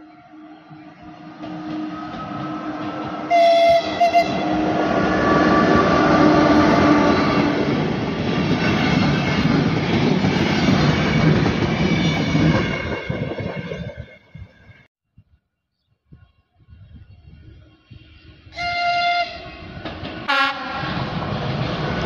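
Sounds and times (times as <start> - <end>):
train horn blasts: 0.0 - 7.7, 18.5 - 19.7, 20.3 - 21.0
train wheels on rails: 0.0 - 14.9, 17.4 - 22.0.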